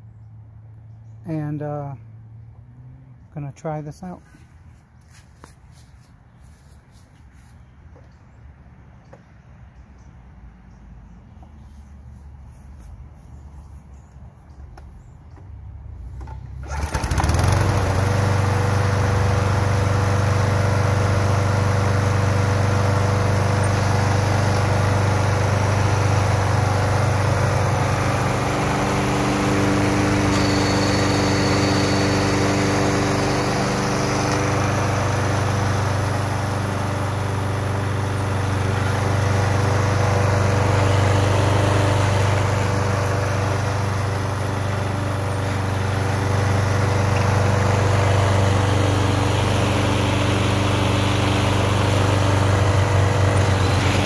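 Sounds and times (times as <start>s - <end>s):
lawn mower engine starting: 15.9s - 54.0s.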